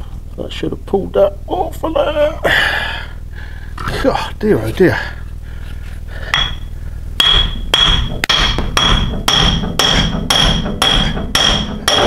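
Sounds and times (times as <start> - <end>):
hammer blows on steel: 7.2 - 12.0.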